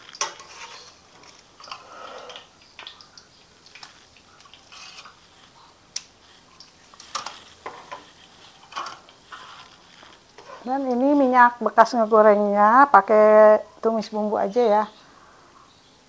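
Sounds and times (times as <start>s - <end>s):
utensils clinking against wok: 7.1s - 9.7s.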